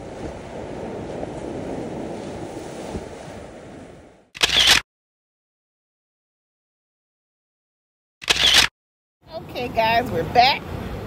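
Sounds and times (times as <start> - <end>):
surf washing onto beach: 0.0 - 4.3.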